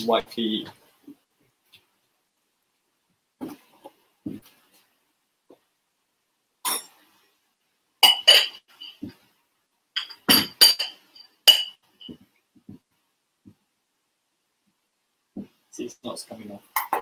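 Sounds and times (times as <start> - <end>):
glass clinking against ceramic bowl: 8.0 - 9.1, 10.0 - 12.2.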